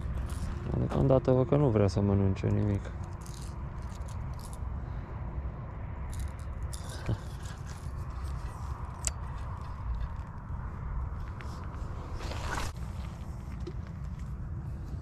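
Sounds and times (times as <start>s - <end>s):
fishing rod clicks and rattles: 0.0s - 1.1s, 2.4s - 4.6s, 6.1s - 10.5s
wind buffeting microphone: 0.0s - 15.0s.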